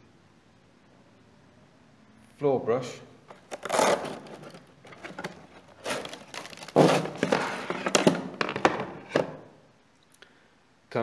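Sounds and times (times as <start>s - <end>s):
hook-and-loop straps ripping: 3.3s - 7.4s
plastic knocks: 4.9s - 9.5s.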